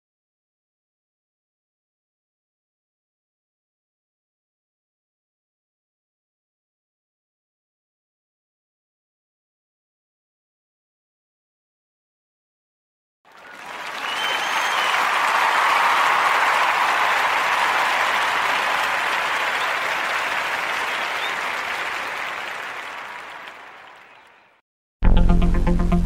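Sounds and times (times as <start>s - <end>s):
crowd applause: 13.3s - 24.6s.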